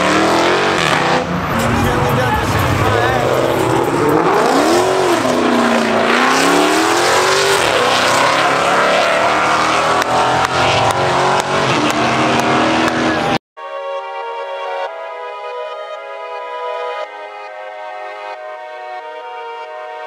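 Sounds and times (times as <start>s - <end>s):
car engine revving: 0.0s - 13.4s
electronic music: 1.3s - 20.0s.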